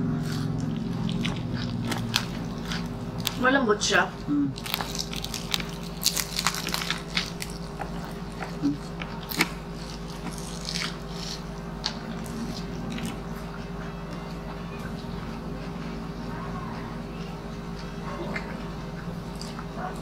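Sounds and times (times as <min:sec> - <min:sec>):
chewing: 0:00.0 - 0:03.4, 0:04.5 - 0:16.0, 0:16.8 - 0:20.0
crispy pork skin crunching: 0:00.0 - 0:15.1.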